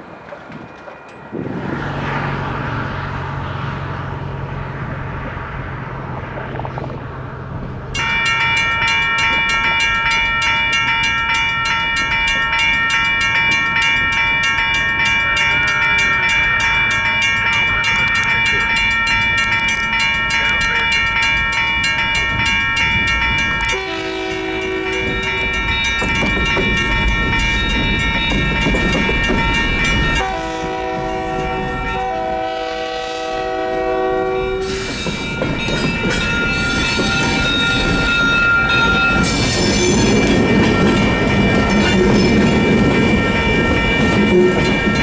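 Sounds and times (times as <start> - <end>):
railroad crossing bell ringing: 0.0 - 1.5, 7.9 - 45.0
train horn: 23.7 - 25.6, 30.2 - 34.9.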